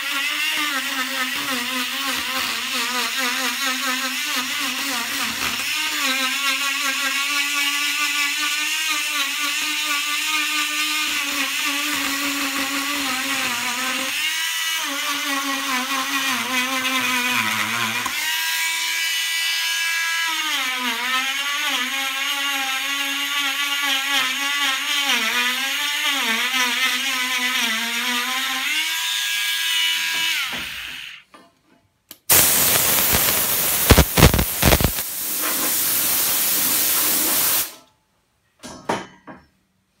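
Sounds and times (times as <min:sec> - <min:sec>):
rotary tool grinding wood: 0:00.0 - 0:31.2
loud steady hiss: 0:32.3 - 0:37.8.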